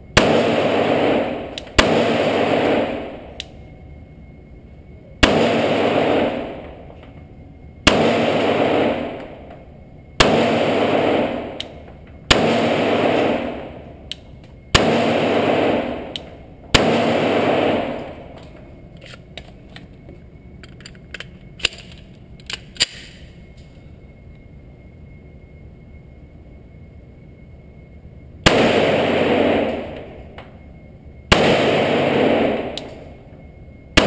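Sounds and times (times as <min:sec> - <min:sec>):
pistol shots echoing indoors: 0:00.0 - 0:03.7, 0:05.2 - 0:07.1, 0:07.8 - 0:19.8, 0:20.6 - 0:23.5, 0:28.4 - 0:30.6, 0:31.3 - 0:33.3
pistol handling clicks: 0:01.5 - 0:01.8, 0:03.4 - 0:03.6, 0:11.6 - 0:11.8, 0:14.1 - 0:14.6, 0:16.1 - 0:16.3, 0:18.4 - 0:19.9, 0:20.6 - 0:23.3, 0:32.7 - 0:33.0.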